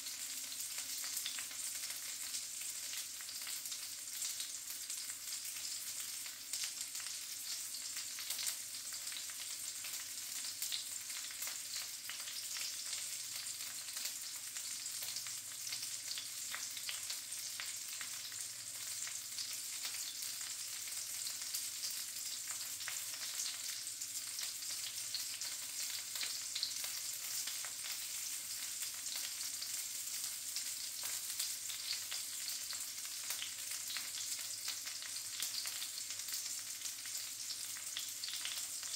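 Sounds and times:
sausages sizzling in a pan: 0.0s - 38.9s.

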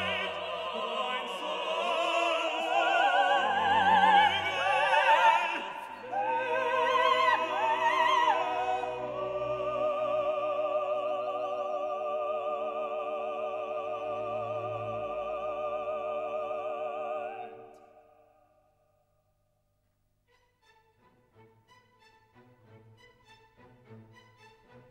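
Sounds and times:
operatic singing: 0.0s - 18.4s
orchestral accompaniment: 20.3s - 24.9s.

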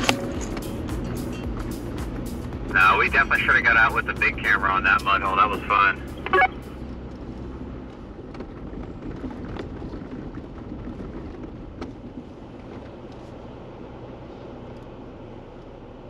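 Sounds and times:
vehicle engine hum: 0.0s - 16.0s
tyre rumble: 6.6s - 13.5s.

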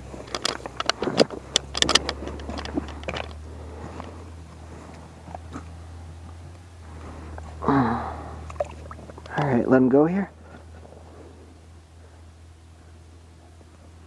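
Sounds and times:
handling clicks and rattles: 0.0s - 6.4s, 8.8s - 9.7s
steady low hum: 0.0s - 14.0s.

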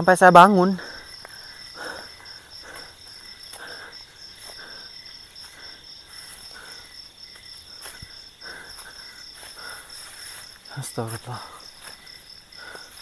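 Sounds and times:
night insects chirring: 0.0s - 13.0s
footsteps in dry leaves: 7.3s - 12.8s.

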